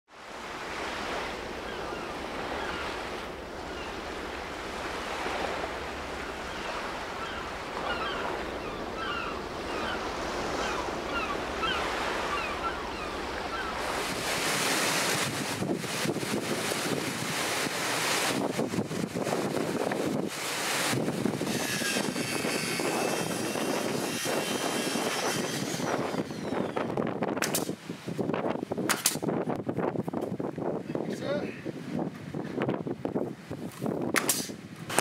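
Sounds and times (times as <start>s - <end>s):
surf breaking on shore: 0.1s - 29.5s
strong wind: 0.1s - 35.0s
wind buffeting microphone: 0.7s - 35.0s.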